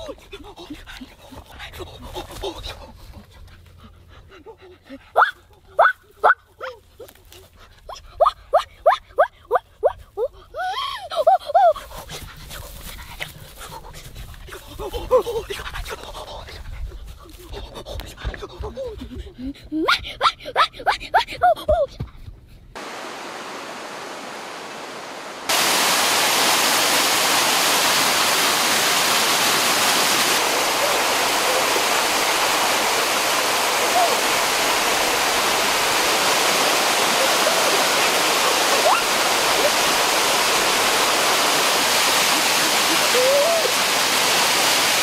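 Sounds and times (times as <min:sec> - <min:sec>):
steady hiss: 0:22.8 - 0:45.0
waterfall pouring over rocks: 0:22.8 - 0:45.0.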